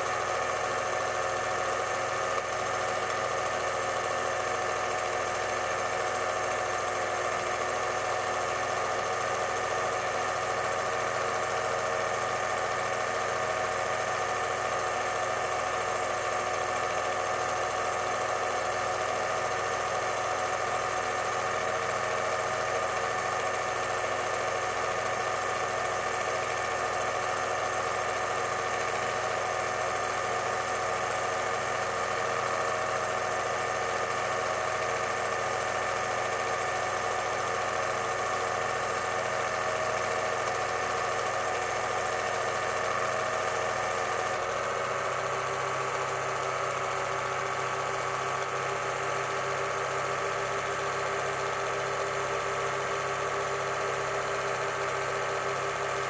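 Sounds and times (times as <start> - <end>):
film projector whirring: 0.0 - 56.0.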